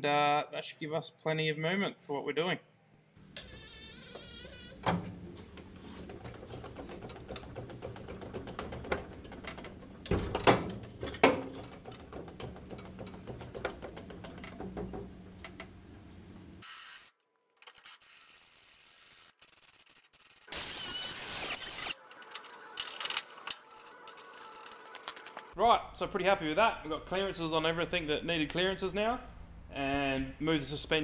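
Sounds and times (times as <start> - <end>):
metal knocks: 4.8 - 15.6.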